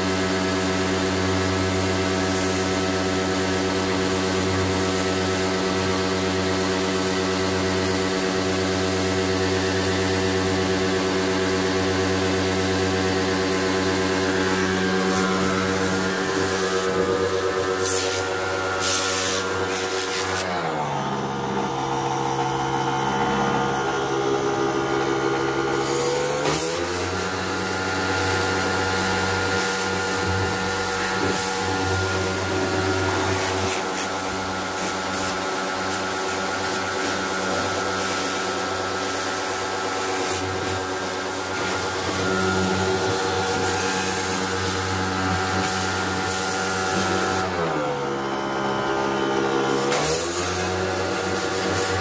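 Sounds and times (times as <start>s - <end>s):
pressure washer motor: 0.0s - 52.0s
water spray hissing on metal: 14.9s - 20.4s, 33.3s - 42.1s.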